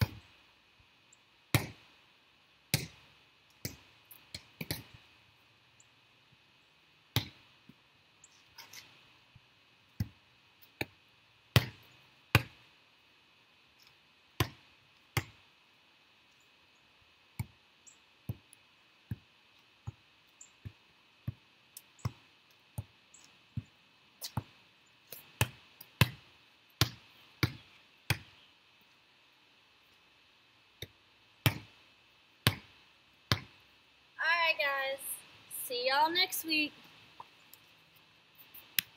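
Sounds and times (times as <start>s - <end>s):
volleyball slapping on hands: 2.7s - 3.0s, 14.4s - 14.6s, 15.2s - 15.4s, 26.8s - 28.3s, 30.8s - 31.7s, 32.4s - 32.7s, 33.3s - 33.6s.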